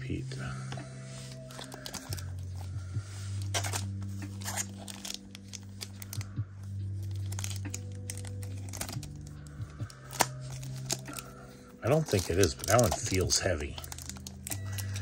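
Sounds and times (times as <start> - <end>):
foil wrapper tearing and crinkling: 1.5 - 2.3, 3.4 - 6.3, 7.0 - 15.0.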